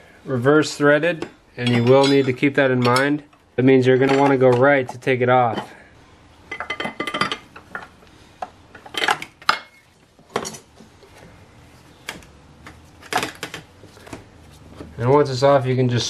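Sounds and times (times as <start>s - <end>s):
metal tools clinking: 1.6s - 3.2s, 3.9s - 5.7s.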